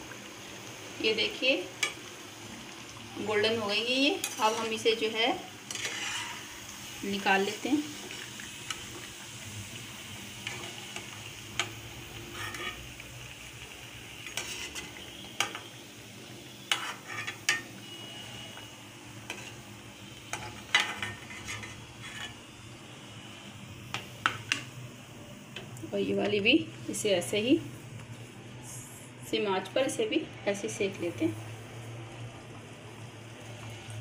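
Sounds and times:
oil sizzling: 0.0 - 34.0
spoon scraping against pan: 4.2 - 4.8, 5.6 - 6.7, 10.4 - 12.9, 14.2 - 15.7, 16.6 - 17.7, 19.2 - 19.6, 20.3 - 22.5.

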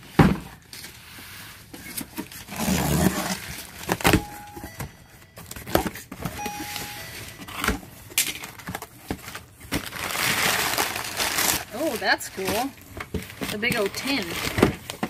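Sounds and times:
packing paper rustling: 7.2 - 15.0.

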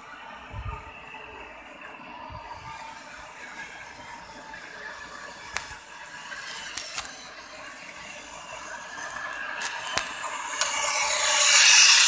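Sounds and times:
model locomotive whirring: 0.0 - 12.0.

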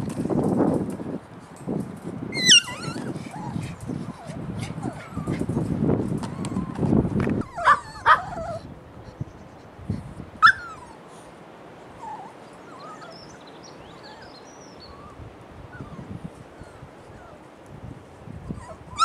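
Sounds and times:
puppies yipping and whimpering: 2.3 - 8.6, 10.4 - 11.1, 12.0 - 13.4, 14.0 - 17.4, 18.5 - 19.0.

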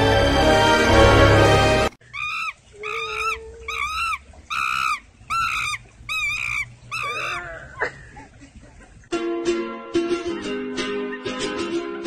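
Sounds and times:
pelican high squeaky calls: 2.0 - 7.6.

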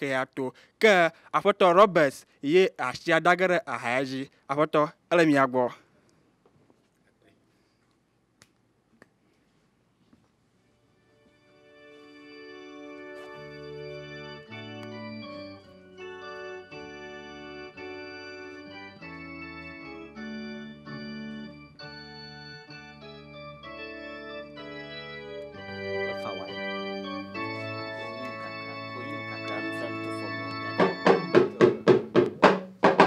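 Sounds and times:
electronic organ sustained chords: 10.7 - 32.2.

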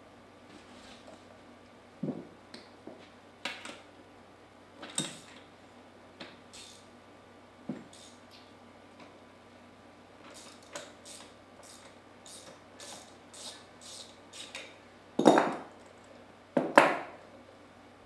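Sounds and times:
ratchet wrench clicking: 6.5 - 6.8, 7.9 - 8.2, 10.3 - 14.7.

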